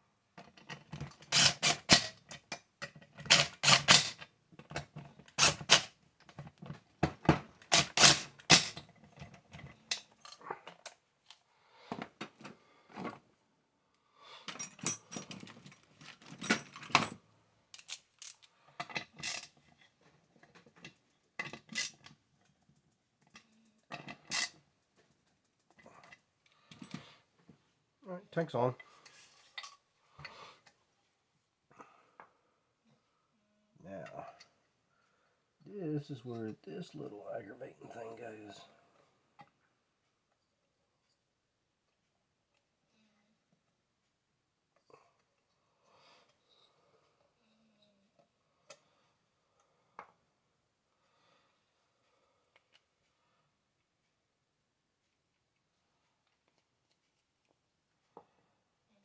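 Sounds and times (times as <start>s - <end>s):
cordless power driver running screws: 1.2s - 2.0s, 3.2s - 4.0s
metallic clinks of screws and tools: 8.0s - 11.0s, 14.5s - 17.2s, 28.8s - 30.3s.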